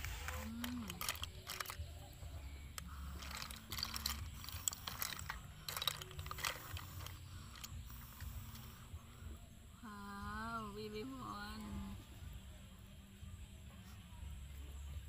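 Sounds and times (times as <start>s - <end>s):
snail shells clicking on metal tray: 0.4s - 7.9s.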